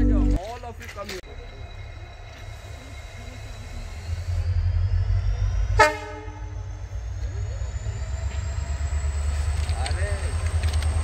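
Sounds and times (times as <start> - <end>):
train rumble: 0.0 - 11.0
train horn toot: 5.8 - 6.5.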